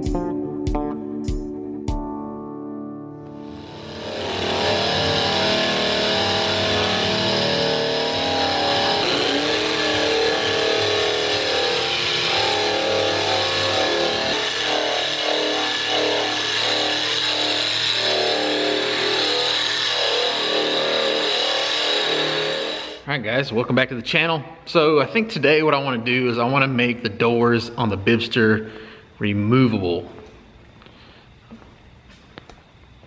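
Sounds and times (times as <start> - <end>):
drum sander grinding steel: 3.4 - 23.1.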